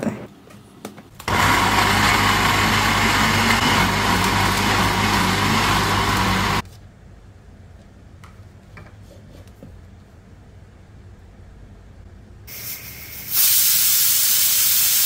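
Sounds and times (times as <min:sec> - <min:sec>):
blender running at full speed: 0:01.2 - 0:06.6.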